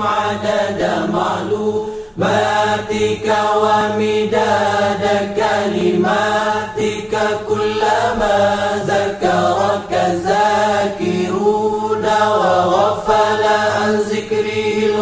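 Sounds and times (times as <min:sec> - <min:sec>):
devotional vocal chant: 0:00.0 - 0:15.0.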